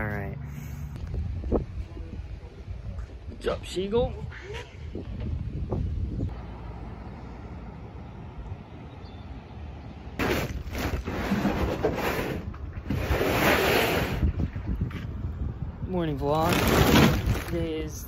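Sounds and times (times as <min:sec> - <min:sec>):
low wind rumble on microphone: 0:01.0 - 0:06.4, 0:12.4 - 0:18.0.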